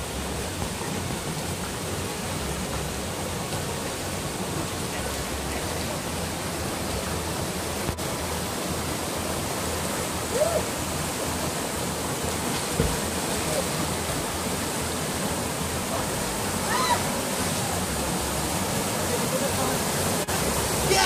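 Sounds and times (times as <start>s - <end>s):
waterfall cascading over rocks: 0.0s - 21.0s
brief thump: 12.7s - 13.0s.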